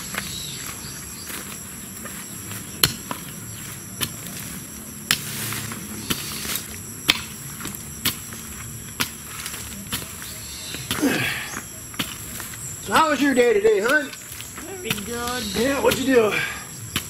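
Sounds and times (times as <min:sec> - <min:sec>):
high-pitched insect buzz: 0:00.0 - 0:16.9
digging tool striking soil: 0:02.8 - 0:03.3, 0:05.1 - 0:16.3.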